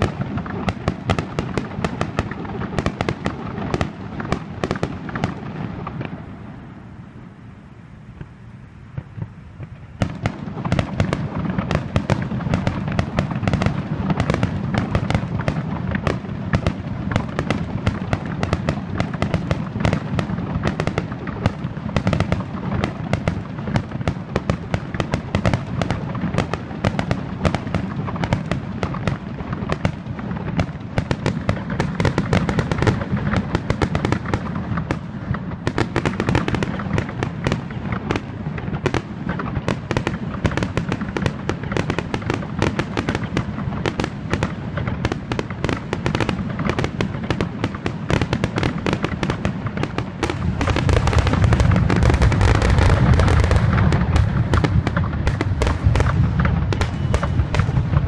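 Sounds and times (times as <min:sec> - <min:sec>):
firework shell bursts crackling: 0:00.0 - 0:06.4, 0:09.0 - 0:58.0
low rumble of booms: 0:48.3 - 0:58.0.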